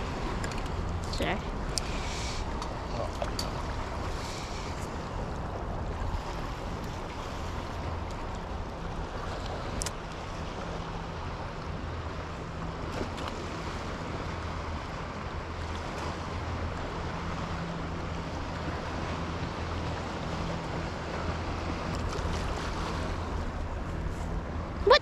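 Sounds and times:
fast water current: 0.0 - 25.0.

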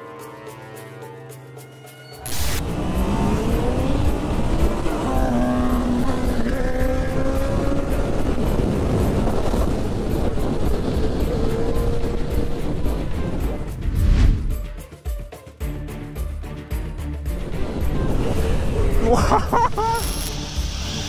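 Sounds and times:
background music: 0.0 - 21.0
motorcycle engine running: 2.6 - 13.7
wind rush on camera: 2.6 - 14.6.

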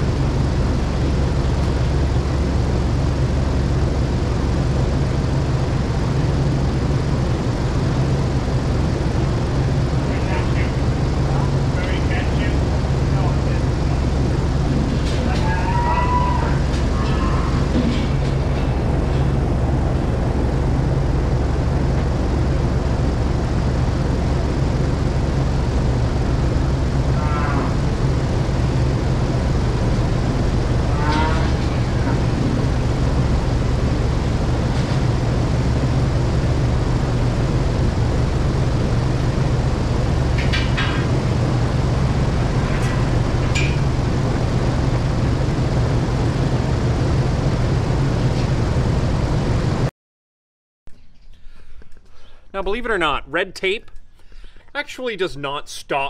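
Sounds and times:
ventilation fans humming: 0.0 - 49.9, 50.9 - 56.0.

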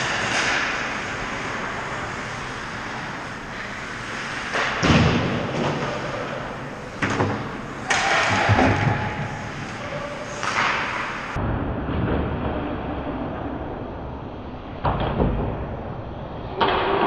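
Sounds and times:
skates hissing on ice: 0.0 - 4.8.

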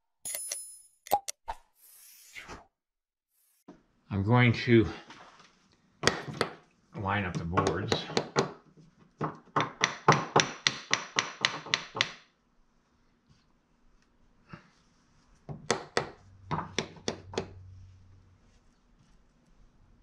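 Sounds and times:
hammer tapping wooden boards: 6.0 - 6.6, 7.3 - 8.6, 9.2 - 12.3, 15.5 - 17.6.

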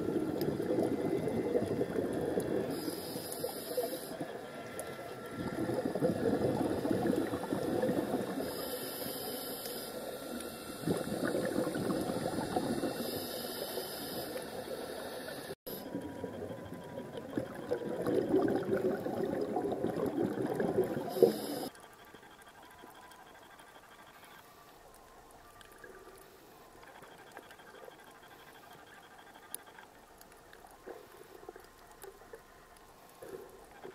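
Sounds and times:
underwater exhaled bubbles bubbling: 0.0 - 8.7, 10.3 - 21.7
regulator inhalation hiss: 2.7 - 4.2, 8.3 - 11.3, 12.1 - 15.9, 21.1 - 21.7.

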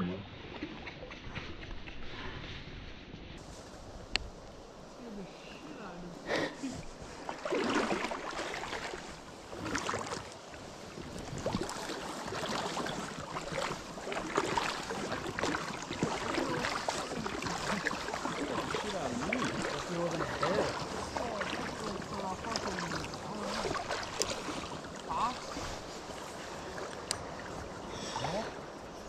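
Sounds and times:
wading steps splashing in stream: 6.3 - 28.7.

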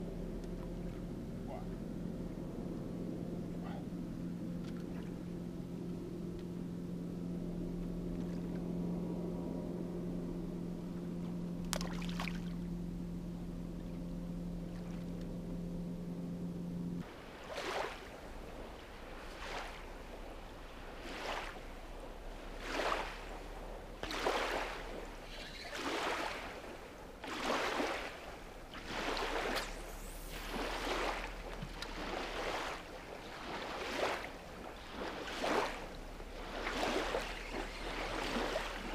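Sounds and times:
motorboat engine humming: 0.0 - 38.9
wake waves washing onto bank: 11.6 - 12.7, 17.0 - 38.9.

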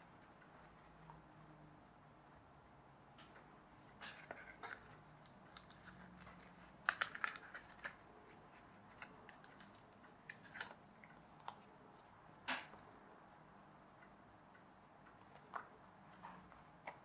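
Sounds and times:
card pieces clicking and crackling: 4.1 - 8.0, 9.0 - 10.8.

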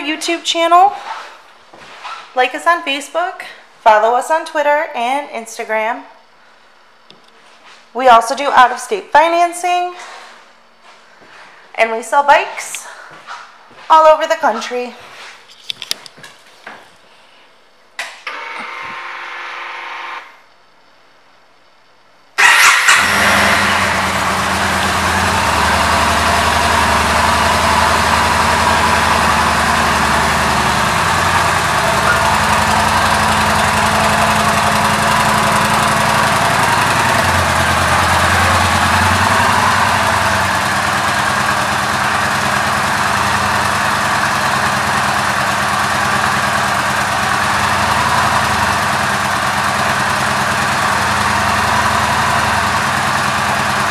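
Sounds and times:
motorcycle engine idling: 22.4 - 53.9.

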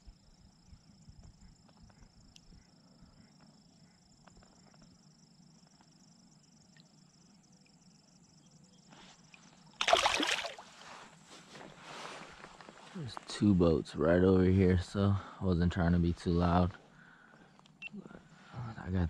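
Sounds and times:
faint small ticks: 0.7 - 7.9, 17.0 - 17.9
fish splashing: 9.8 - 10.8.

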